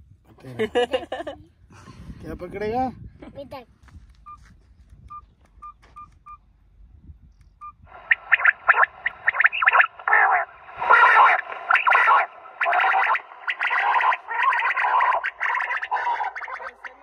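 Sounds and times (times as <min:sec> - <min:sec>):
short electronic beeps: 0:05.1 - 0:06.4, 0:07.6 - 0:14.8
recorded quail calls over loudspeaker: 0:07.9 - 0:17.0.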